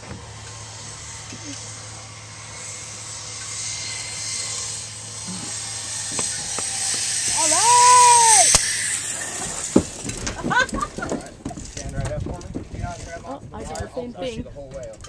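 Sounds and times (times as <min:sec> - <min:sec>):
zipline pulleys hissing on cable: 0:00.0 - 0:11.8
person whooping: 0:07.4 - 0:08.5.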